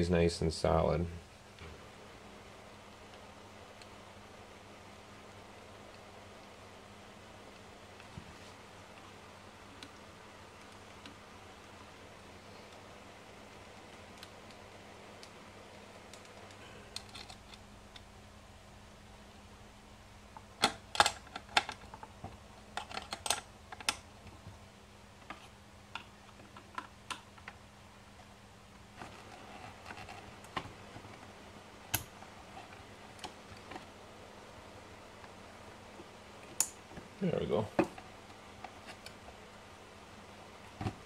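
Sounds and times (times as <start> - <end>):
wires and connectors clicking: 8.9 - 11.8, 13.7 - 18.1, 20.3 - 24.6, 25.2 - 27.6, 29.0 - 33.9, 36.4 - 37.1.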